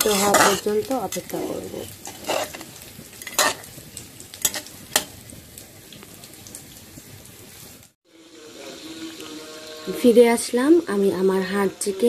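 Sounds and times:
spatula stirring curry: 0:00.0 - 0:03.7, 0:04.4 - 0:05.1
curry hissing while cooking: 0:00.0 - 0:12.0.

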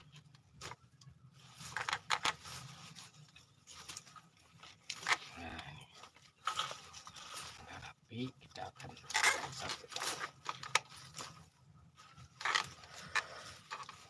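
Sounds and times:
leaves rustling and tearing: 0:00.0 - 0:08.0, 0:08.8 - 0:14.0
stalks snapping with sharp cracks: 0:04.8 - 0:05.4.

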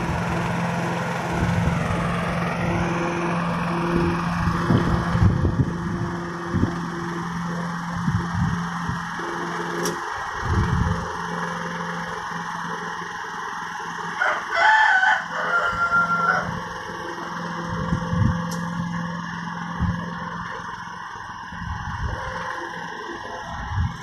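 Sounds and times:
lawnmower running: 0:00.0 - 0:24.0
rooster crowing: 0:14.1 - 0:16.8.

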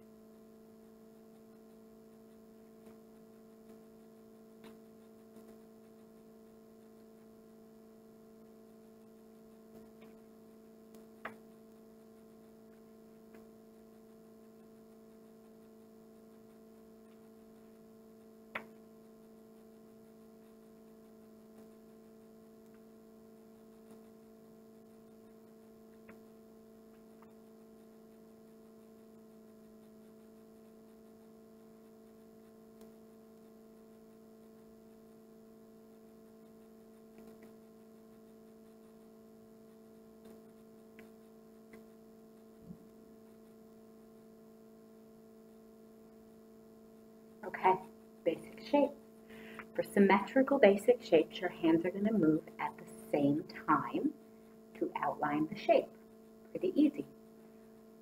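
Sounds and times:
low electrical hum: 0:00.0 - 0:58.0
faint clicks: 0:01.2 - 0:07.4.

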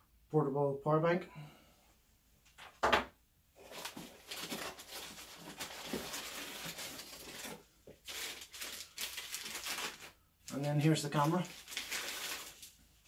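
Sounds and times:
cardboard and plastic rustling: 0:03.6 - 0:13.0.

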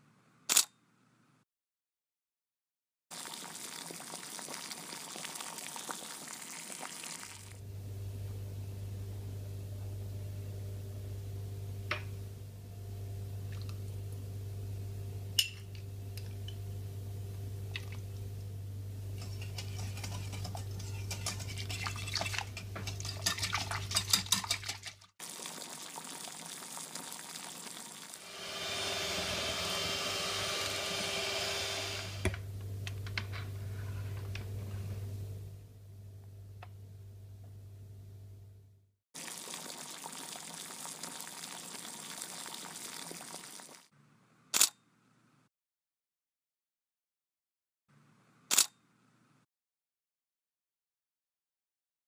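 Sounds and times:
low steady hum: 0:07.6 - 0:24.7, 0:28.9 - 0:38.8
whisk scraping glass bowl: 0:19.2 - 0:25.1
electric hand mixer whirring: 0:28.2 - 0:32.4.

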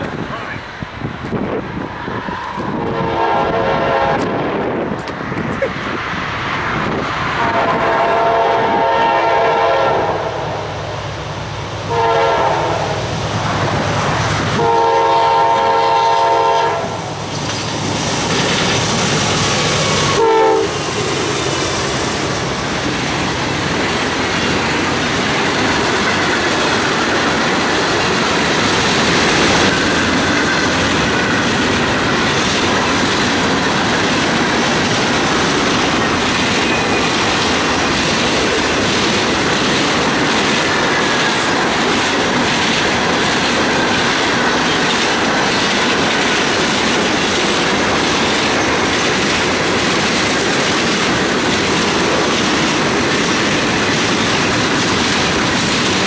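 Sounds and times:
train cars running on rails: 0:00.0 - 0:56.0
train horn blasts: 0:02.8 - 0:04.4, 0:07.4 - 0:10.7, 0:11.9 - 0:13.0, 0:14.6 - 0:17.0, 0:20.1 - 0:20.8.

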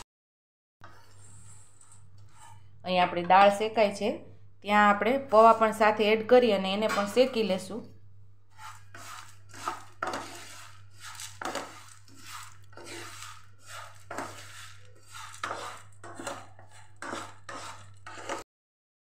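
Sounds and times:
spatula scraping frying pan: 0:00.8 - 0:02.8, 0:08.5 - 0:18.4
lentils rattling against pan: 0:08.6 - 0:18.4.

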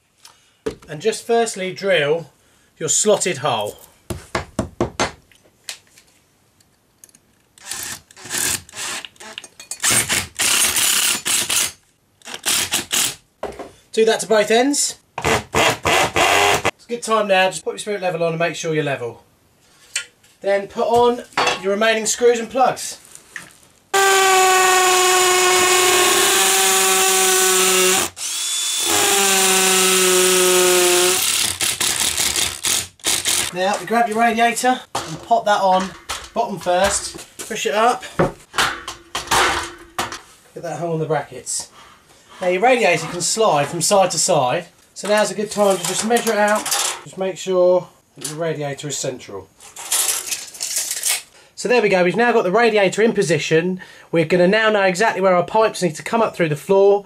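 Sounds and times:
cordless drill whirring: 0:24.0 - 0:33.5.

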